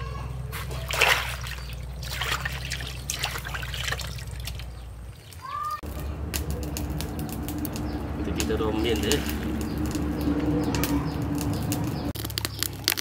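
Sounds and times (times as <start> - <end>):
water sloshing in plastic basin: 0.6 - 4.8.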